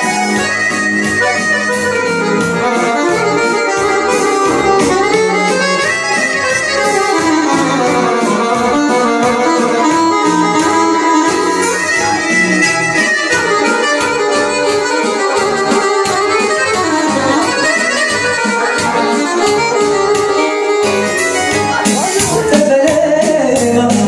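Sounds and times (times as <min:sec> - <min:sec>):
accordion lead: 0:00.0 - 0:24.0
bass line: 0:00.0 - 0:24.0
steady beat: 0:00.0 - 0:24.0
synthesizer keyboard backing: 0:00.0 - 0:24.0.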